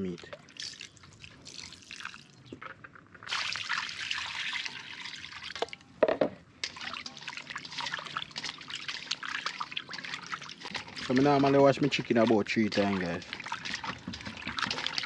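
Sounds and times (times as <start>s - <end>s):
water pouring into a steel bowl: 0.0s - 2.4s, 3.2s - 5.8s, 6.6s - 15.0s
hands sloshing water: 6.6s - 15.0s.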